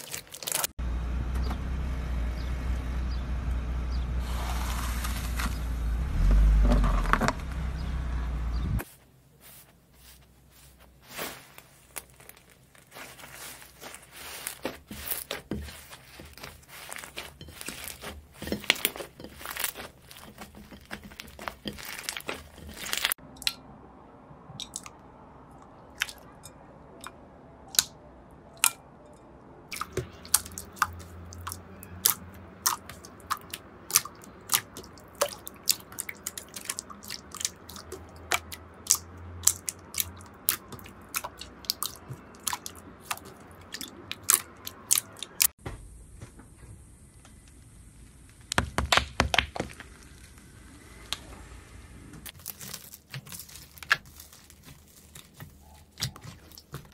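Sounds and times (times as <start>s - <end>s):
slime popping and crackling: 11.1s - 23.2s, 29.7s - 45.5s, 52.3s - 56.9s.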